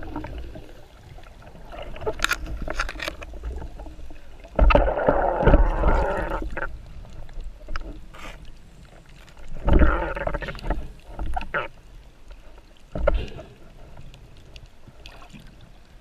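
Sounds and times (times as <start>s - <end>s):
churning water rushes: 0.0s - 6.8s
muffled underwater sloshing: 0.0s - 16.0s.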